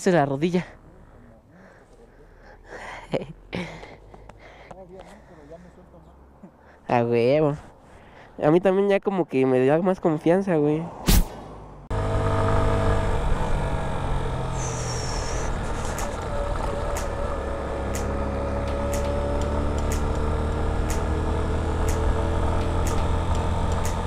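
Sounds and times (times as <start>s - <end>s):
motorcycle engine running: 11.9s - 24.0s.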